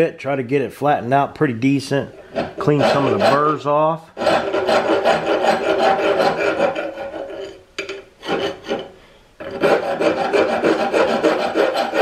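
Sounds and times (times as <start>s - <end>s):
hand file rasping on steel: 2.1s - 7.6s, 8.2s - 12.0s.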